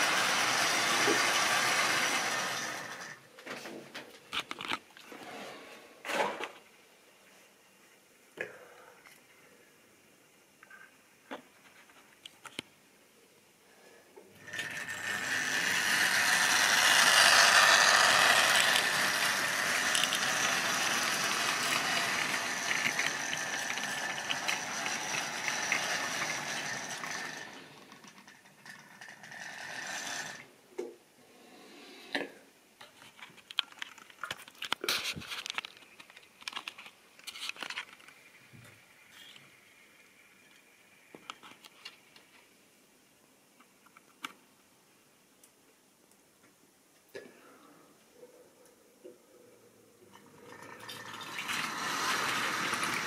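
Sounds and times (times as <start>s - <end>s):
model train motor whirring: 0.0s - 3.2s, 14.4s - 30.5s, 50.2s - 53.0s
wagon wheels rattling on track: 14.4s - 30.4s, 50.4s - 53.0s.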